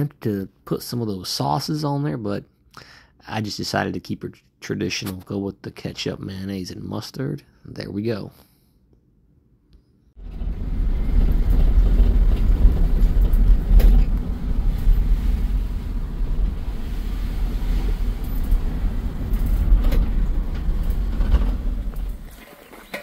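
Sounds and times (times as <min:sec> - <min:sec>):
vehicle road and engine rumble: 0:10.2 - 0:22.4.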